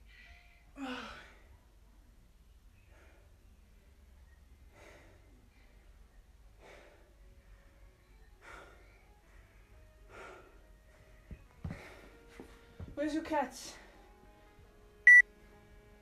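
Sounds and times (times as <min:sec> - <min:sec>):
person breathing hard: 0:04.7 - 0:06.0, 0:06.6 - 0:07.3, 0:08.4 - 0:10.8, 0:11.6 - 0:12.5.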